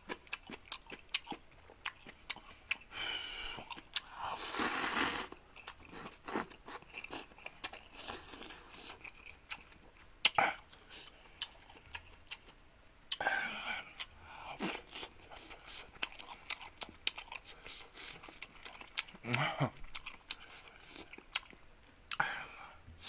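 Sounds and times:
wet chewing and lip smacks: 0.0s - 2.9s, 3.6s - 4.1s, 5.3s - 22.2s
person slurping noodles: 4.4s - 5.3s.

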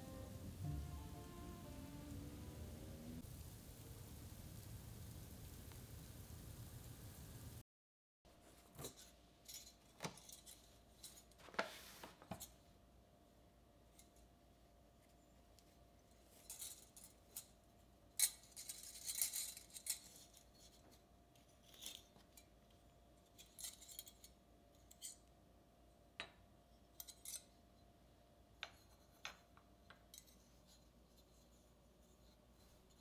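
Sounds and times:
metal cookie cutters clinking: 18.2s - 20.8s, 23.2s - 25.3s, 26.9s - 27.6s.

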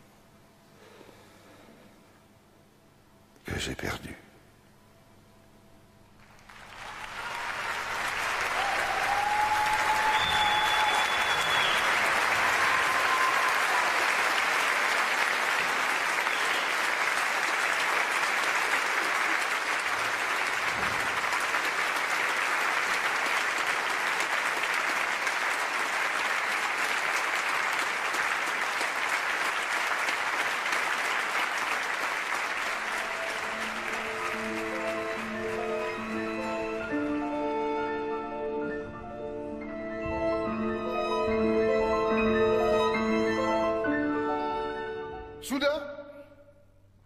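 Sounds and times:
audience applauding: 6.2s - 37.2s
instruments playing: 32.8s - 45.2s.

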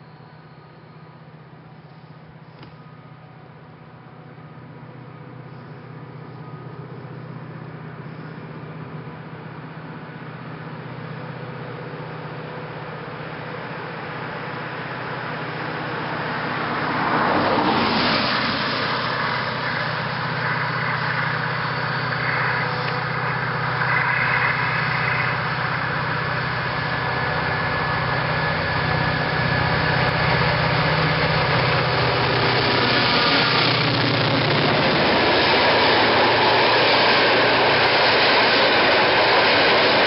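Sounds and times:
diesel locomotive engine drone: 0.0s - 40.0s
road vehicle passing: 14.2s - 40.0s.

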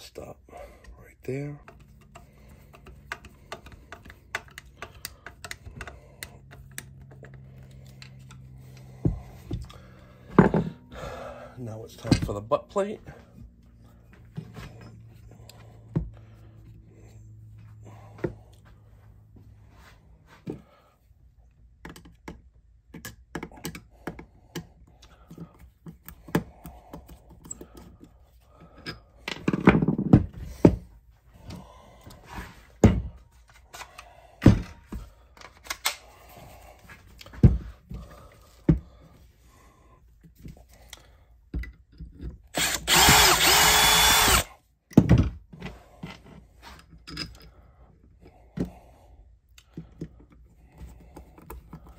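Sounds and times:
hand tools tapping on wood: 1.6s - 7.4s, 21.8s - 31.6s.

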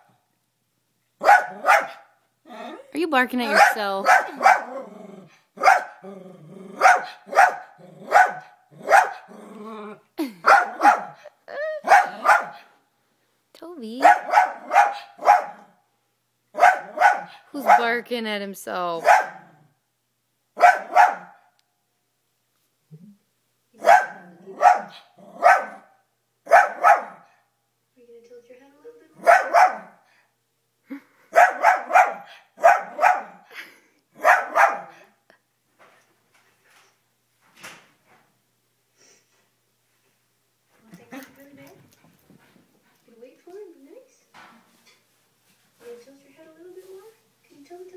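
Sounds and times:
dog barking excitedly: 1.2s - 2.1s, 3.4s - 4.8s, 5.6s - 6.0s, 6.8s - 9.3s, 10.4s - 12.7s, 14.0s - 15.8s, 16.5s - 18.0s, 19.0s - 19.6s, 20.6s - 21.5s, 23.8s - 27.4s, 29.2s - 30.0s, 31.3s - 33.5s, 34.2s - 35.1s
dog growling: 4.3s - 6.9s, 7.8s - 10.1s.

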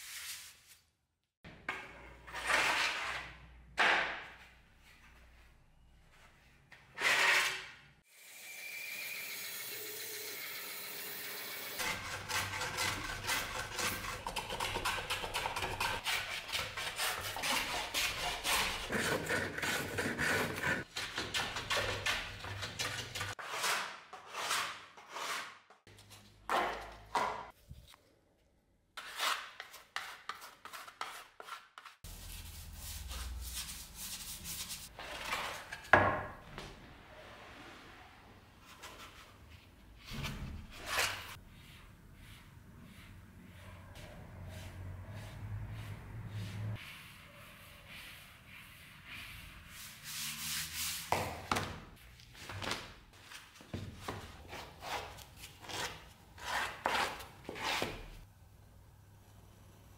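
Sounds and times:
hand plane shaving wood: 11.8s - 20.9s, 54.4s - 57.9s.

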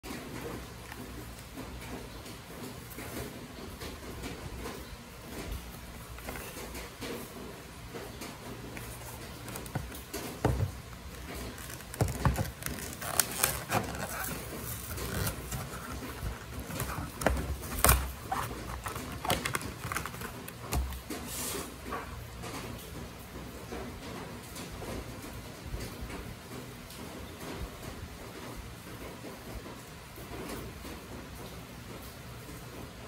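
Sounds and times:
plastic blister pack crackling: 8.1s - 21.2s
plastic snapping: 8.8s - 21.2s.

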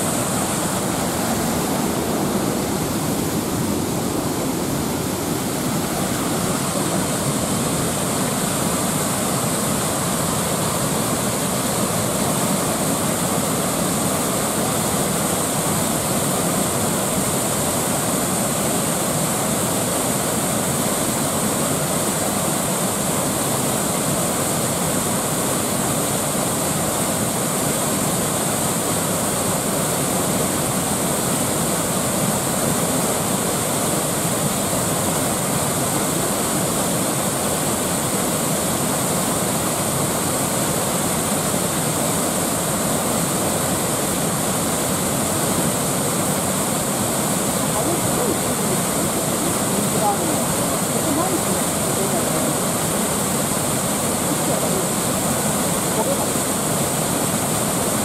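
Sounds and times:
waterfall rushing: 0.0s - 58.0s.

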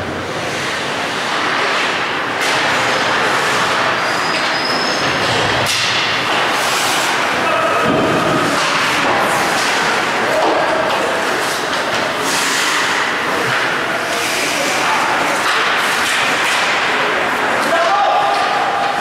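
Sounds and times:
loud rushing din of rink: 0.0s - 19.0s
skate blades scraping ice: 6.4s - 7.4s.

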